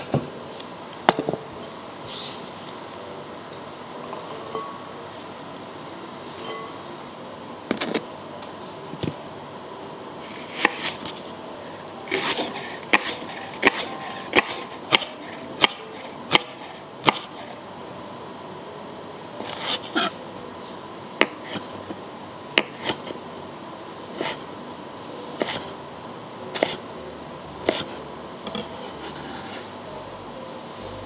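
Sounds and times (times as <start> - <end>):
knife chopping on wooden board: 12.1 - 17.3.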